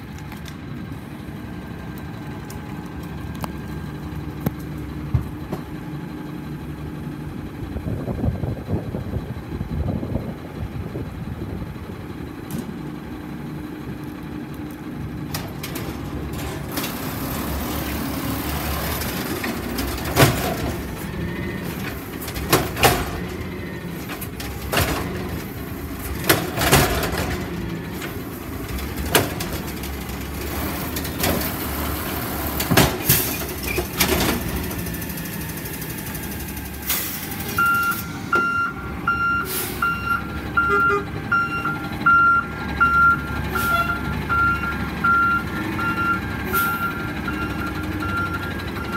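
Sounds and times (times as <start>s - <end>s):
garbage truck running: 0.0s - 48.9s
loud metal clunks: 19.0s - 28.1s, 32.6s - 34.7s
reversing beeper beeping: 37.5s - 48.9s.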